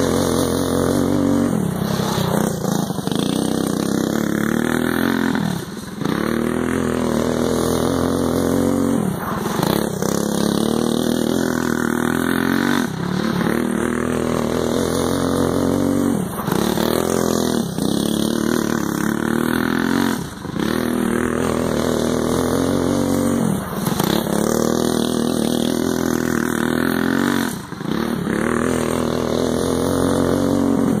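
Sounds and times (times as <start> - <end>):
go-kart engine revving: 0.0 - 31.0.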